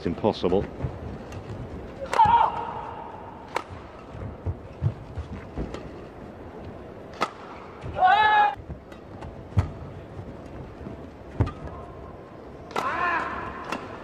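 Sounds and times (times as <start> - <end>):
rackets smacking shuttlecock: 0.8 - 8.0, 11.4 - 14.0.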